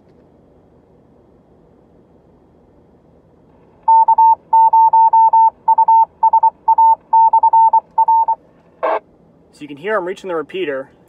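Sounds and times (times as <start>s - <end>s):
morse code beeps over radio: 3.9s - 9.0s.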